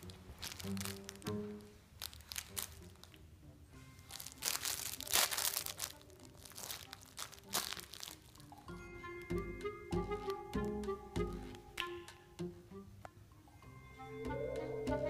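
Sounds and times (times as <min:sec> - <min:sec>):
background music: 0:00.0 - 0:15.0
dog chewing crinkle toy: 0:04.0 - 0:08.6.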